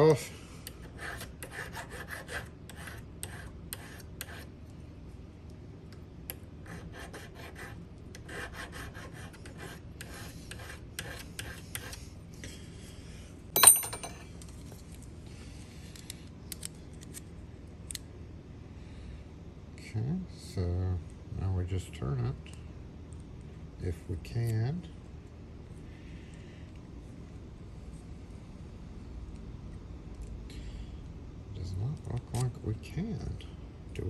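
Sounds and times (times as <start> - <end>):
file rasping on metal: 0.8 - 4.5, 6.6 - 12.0.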